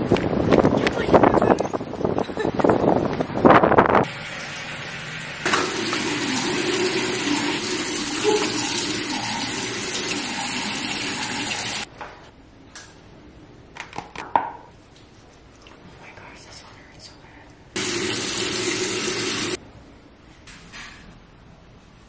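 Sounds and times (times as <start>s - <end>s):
tap water running: 4.0s - 11.9s, 17.8s - 19.6s.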